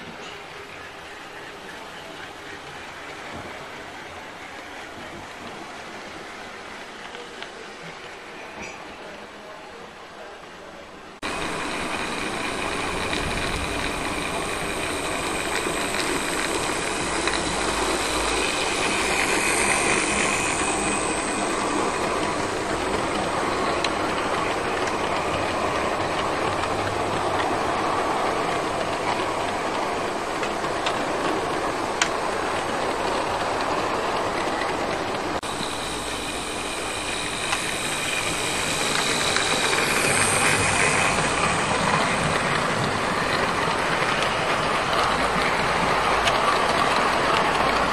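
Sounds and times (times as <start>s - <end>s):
wheels rattling on rails: 11.2s - 47.9s
electric motor whine: 11.3s - 23.3s.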